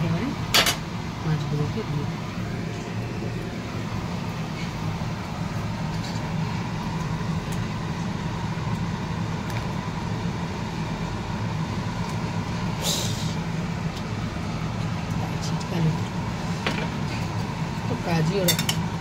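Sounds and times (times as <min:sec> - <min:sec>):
low mechanical hum: 0:00.0 - 0:19.0
short hiss: 0:12.8 - 0:13.4.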